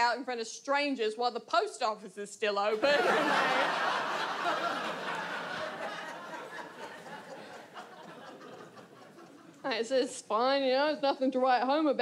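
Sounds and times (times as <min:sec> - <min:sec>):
live audience laughing: 0:02.7 - 0:09.6.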